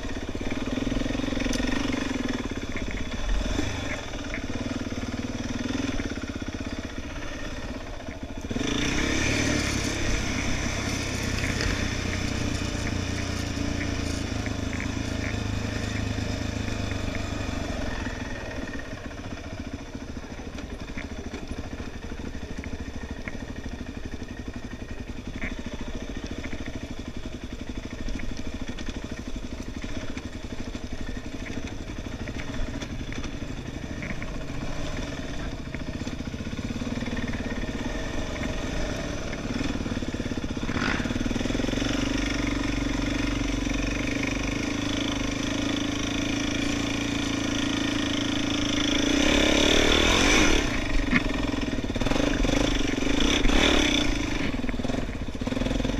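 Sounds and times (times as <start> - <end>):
quad bike engine running: 0.0 - 55.9
light ticks: 0.1 - 8.5, 9.5 - 43.8.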